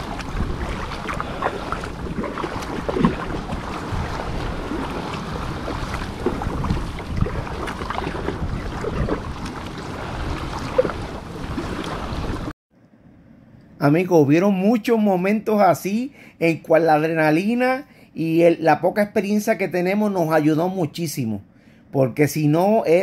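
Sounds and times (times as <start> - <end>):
wind on microphone: 0.0 - 12.5
water splashing around kayak: 0.0 - 12.6.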